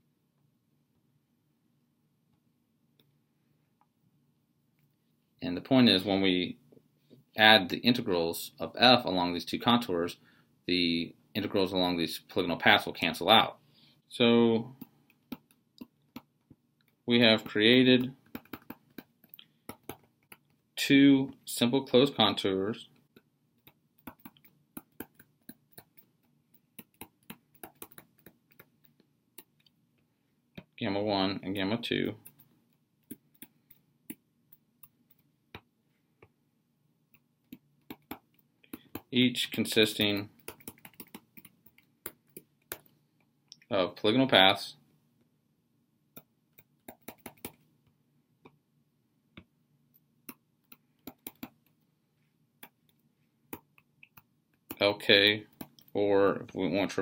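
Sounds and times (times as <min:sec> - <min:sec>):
stylus tapping on tablet screen: 0:14.8 - 0:20.6, 0:23.1 - 0:29.8, 0:32.2 - 0:36.4, 0:37.1 - 0:39.1, 0:40.0 - 0:43.0, 0:46.1 - 0:47.6, 0:50.2 - 0:51.8, 0:52.6 - 0:54.8.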